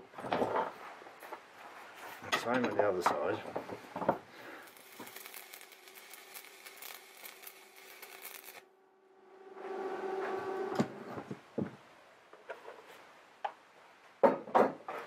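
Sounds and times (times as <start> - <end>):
arc welder crackling: 4.5 - 8.8
steady hum: 8.6 - 11.6.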